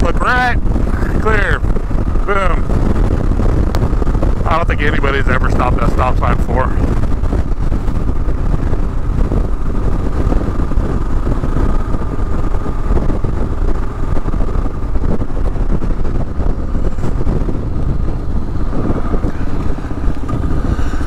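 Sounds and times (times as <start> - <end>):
motorcycle engine running: 0.0 - 21.0
wind rush on microphone: 0.0 - 21.0.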